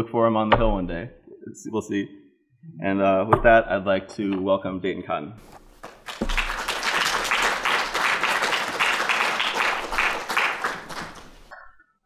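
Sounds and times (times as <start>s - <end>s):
audience applauding: 5.8s - 11.6s.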